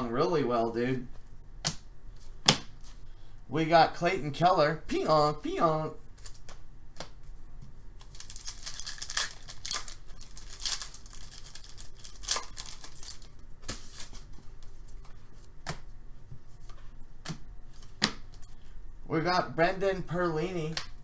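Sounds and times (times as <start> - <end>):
foil wrapper crinkling and tearing: 8.0 - 14.3.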